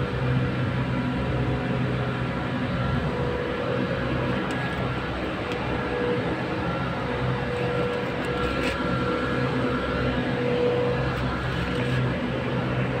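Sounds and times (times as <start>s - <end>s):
machine engine drone with whining: 0.0s - 13.0s.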